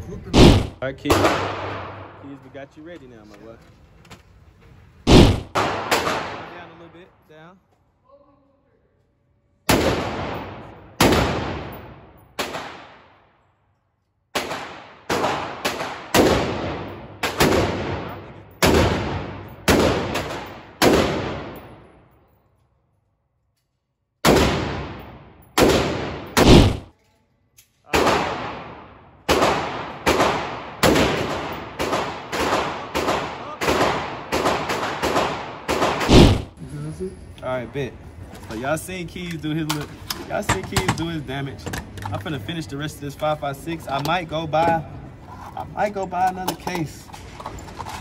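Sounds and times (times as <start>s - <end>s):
rifle shots with echo: 0.3s - 2.2s, 5.1s - 6.8s, 9.7s - 13.3s, 14.3s - 21.9s, 24.2s - 26.9s, 27.9s - 36.6s.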